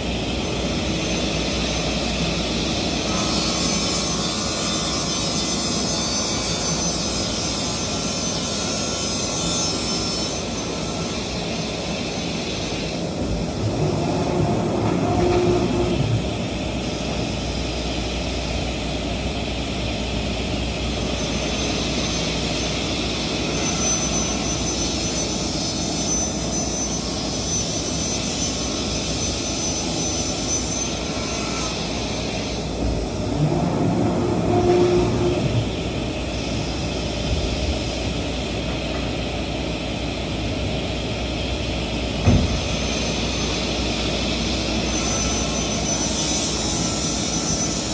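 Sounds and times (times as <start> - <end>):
faint high whine: 42.6 - 47.9.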